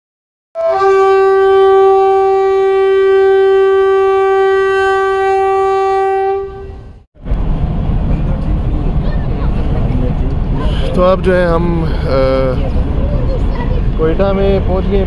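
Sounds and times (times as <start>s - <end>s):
long horn-like tone: 0.6s - 7.0s.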